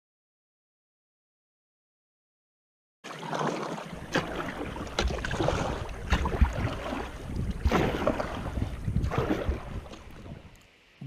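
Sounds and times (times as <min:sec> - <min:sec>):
paddle splashing through water: 0:03.0 - 0:10.5
wind buffeting microphone: 0:04.6 - 0:10.6.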